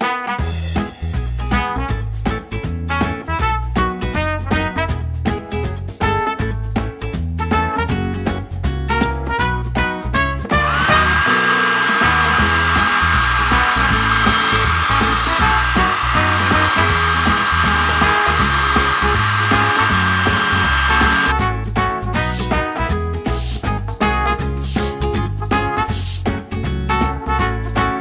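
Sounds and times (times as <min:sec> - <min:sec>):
hair dryer running: 0:10.5 - 0:21.4.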